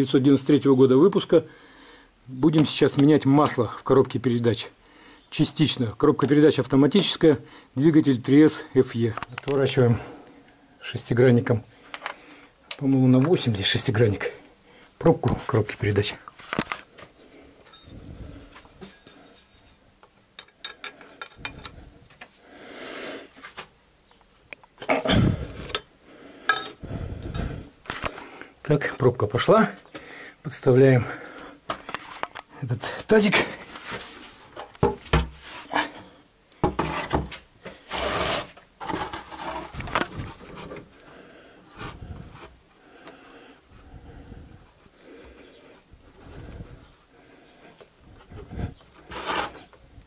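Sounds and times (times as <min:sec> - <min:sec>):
faint handling noise: 0:11.4 - 0:22.4, 0:36.7 - 0:41.1
loud scrape: 0:37.8 - 0:39.8, 0:49.0 - 0:49.7.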